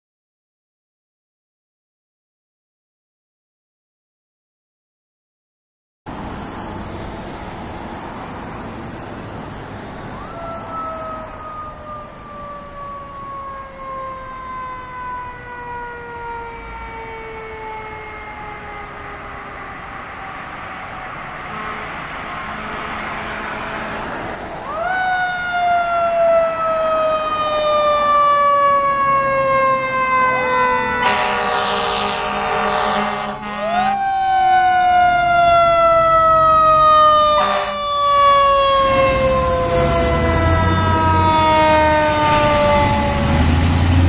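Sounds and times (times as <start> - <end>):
fire engine sirens wailing: 6.1 - 44.0
siren whoop: 9.8 - 21.8, 24.6 - 44.0
loud horn blast: 21.4 - 24.3, 30.3 - 34.1, 37.3 - 37.9, 38.9 - 44.0.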